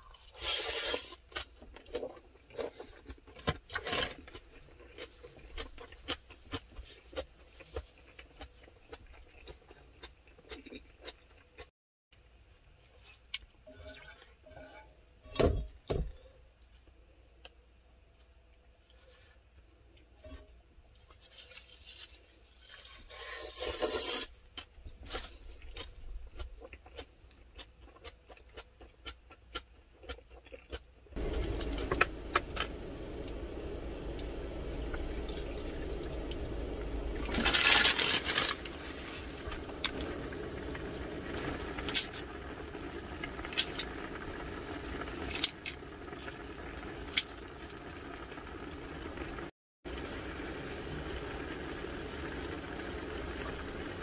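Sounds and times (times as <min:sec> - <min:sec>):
gas stove burner hissing: 0:31.2 - 0:54.0.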